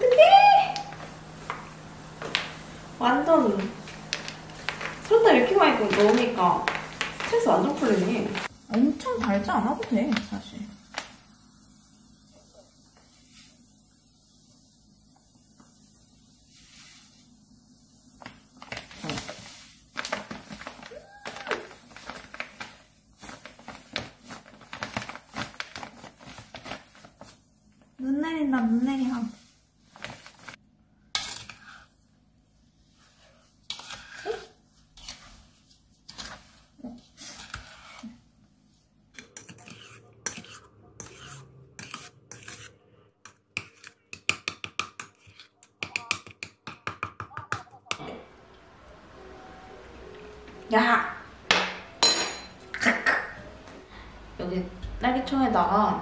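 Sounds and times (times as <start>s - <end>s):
low room noise: 0.0s - 44.1s, 45.1s - 56.0s
plastic bag crinkling: 3.4s - 10.4s, 18.6s - 27.4s
spoon scraping plastic bowl: 33.7s - 34.2s, 36.0s - 38.2s, 39.1s - 44.3s.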